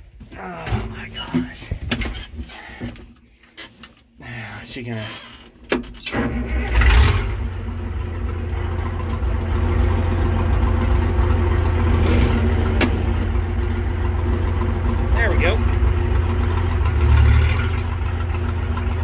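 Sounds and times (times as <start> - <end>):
diesel tractor engine: 0.0 - 3.8, 4.8 - 19.0.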